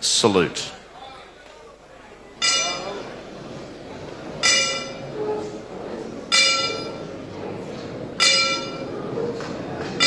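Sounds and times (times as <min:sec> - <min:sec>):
boxing ring bell ringing: 0:02.4 - 0:03.0, 0:04.4 - 0:05.1, 0:06.3 - 0:07.0, 0:08.2 - 0:08.9.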